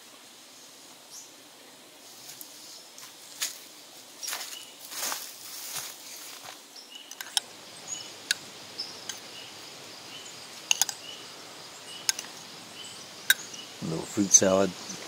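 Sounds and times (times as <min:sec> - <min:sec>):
steady outdoor hiss: 0:00.0 - 0:15.0
metal spoon clinking on mug: 0:10.7 - 0:11.0, 0:12.1 - 0:12.3.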